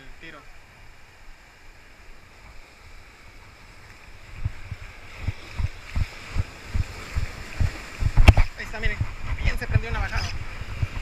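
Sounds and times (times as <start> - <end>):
surf breaking on rocks: 2.3 - 11.0
dull low thumps of fishing reel: 4.3 - 11.0.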